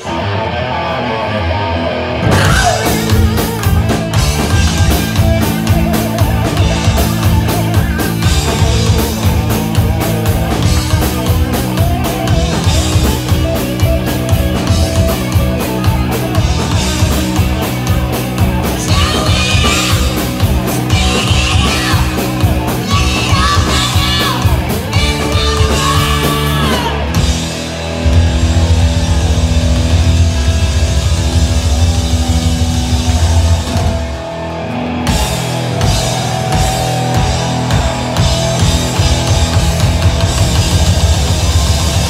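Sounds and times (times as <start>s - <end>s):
live rock band playing: 0.0s - 42.0s
person singing: 18.6s - 27.2s.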